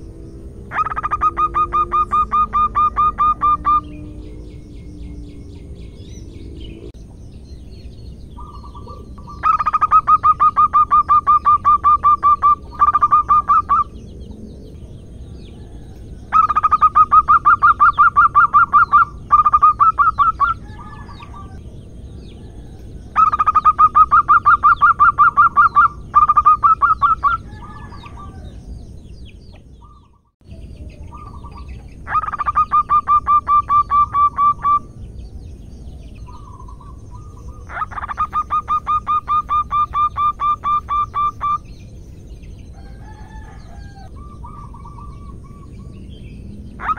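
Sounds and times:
dove cooing: 0.0s - 6.4s, 8.4s - 14.0s, 15.6s - 21.6s, 22.4s - 28.5s, 31.0s - 34.8s, 36.3s - 41.6s.

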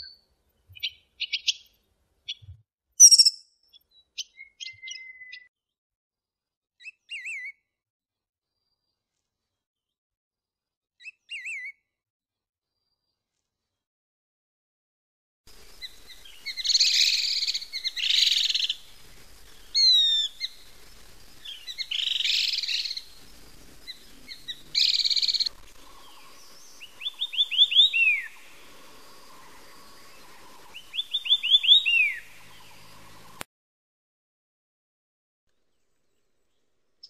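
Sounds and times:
bird singing whistled notes: 0.0s - 1.7s, 2.3s - 5.5s, 6.8s - 7.6s, 11.0s - 11.8s, 15.8s - 18.8s, 19.6s - 20.6s, 21.4s - 23.1s, 23.9s - 28.5s, 29.4s - 33.3s
laughingthrushes harsh chattering calls: 3.0s - 3.3s, 16.1s - 18.9s, 19.7s - 20.6s.

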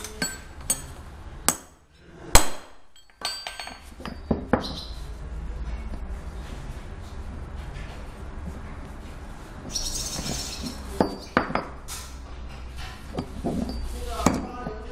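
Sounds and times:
metal knocks and clinks: 0.0s - 1.0s, 2.9s - 4.5s, 12.6s - 14.6s.

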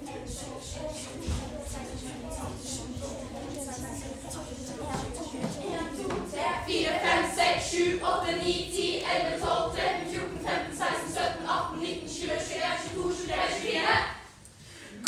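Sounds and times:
group singing in chorus: 5.4s - 14.4s.

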